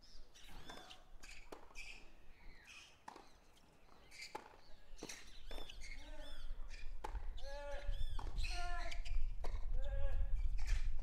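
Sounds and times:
shoe squeaks: 4.1 - 4.4.

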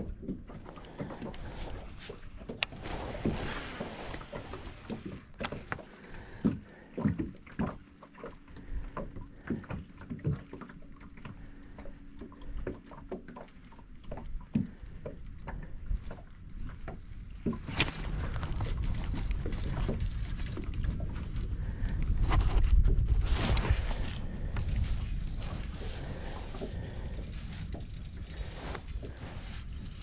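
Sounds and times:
knocks and clicks on a boat: 0.0 - 23.1
water lapping at a hull: 0.0 - 30.0.

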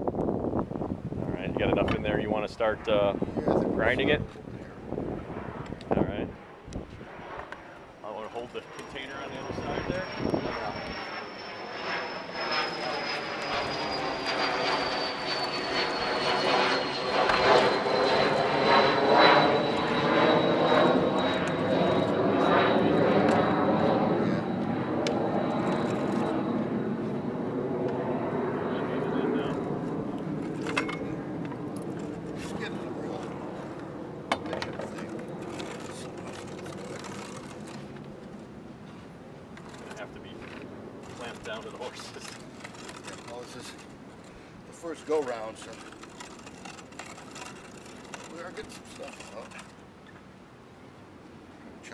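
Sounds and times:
high whine falling in pitch: 4.8 - 38.5
passing engine drone: 6.2 - 34.3.

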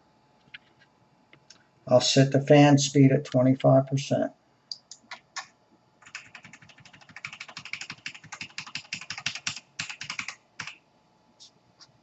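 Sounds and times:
typing on computer keyboard: 4.7 - 10.8.

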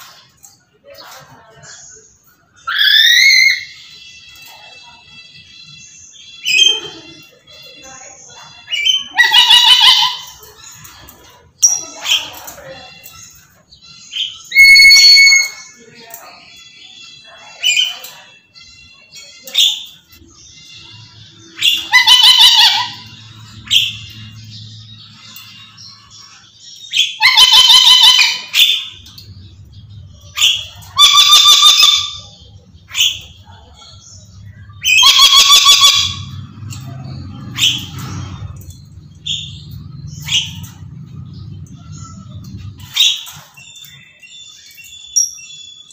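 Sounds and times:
parrot screeching: 2.6 - 4.8, 8.6 - 13.5, 14.1 - 15.8, 20.6 - 29.4, 30.0 - 43.6.

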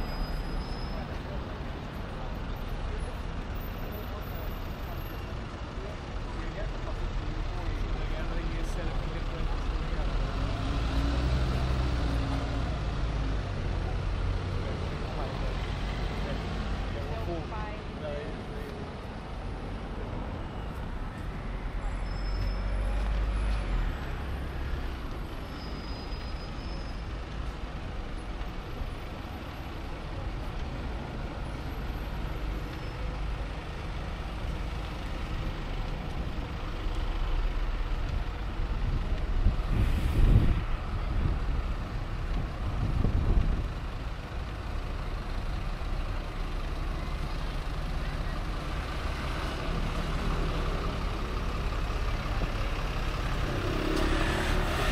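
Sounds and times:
road traffic rumble: 0.0 - 54.9.

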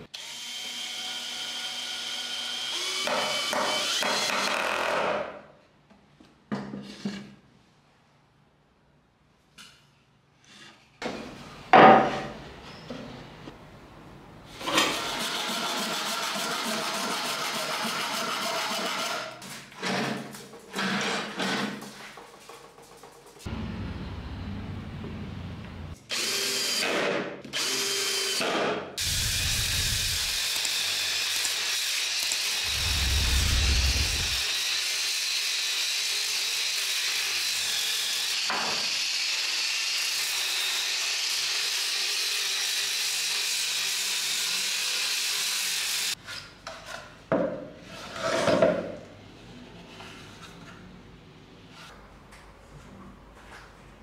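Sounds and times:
power tool bursts: 29.0 - 34.6.

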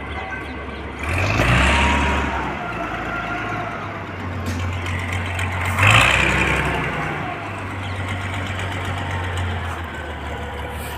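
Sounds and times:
heavy engine humming: 0.0 - 10.9.

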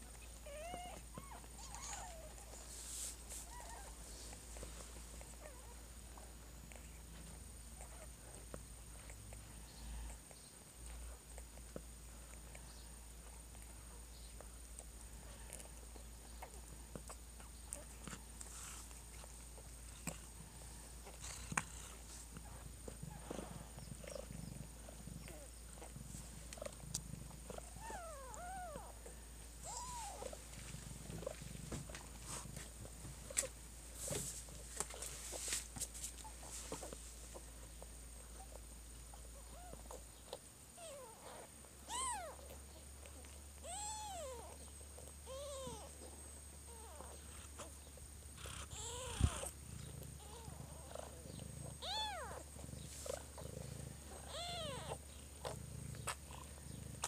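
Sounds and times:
cat purring: 0.0 - 57.0
kittens mewing: 48.4 - 49.6, 50.2 - 56.5.

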